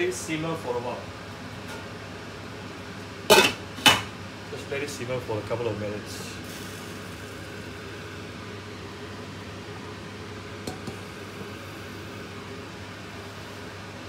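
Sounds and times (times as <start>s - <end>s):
fan whir and hum: 0.0s - 14.0s
wok simmering under lid: 6.4s - 14.0s.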